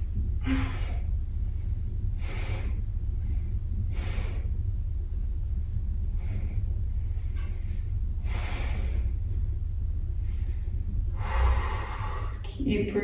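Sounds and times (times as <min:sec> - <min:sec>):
steady low hum: 0:00.0 - 0:13.0
man breathing: 0:00.4 - 0:04.8, 0:06.0 - 0:12.5.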